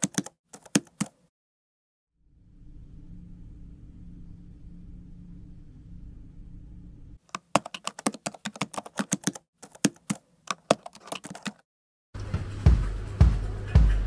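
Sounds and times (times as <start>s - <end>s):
quick irregular clicks: 0.0s - 1.2s, 7.3s - 11.6s
low steady hum: 2.2s - 7.2s
music: 12.2s - 14.0s.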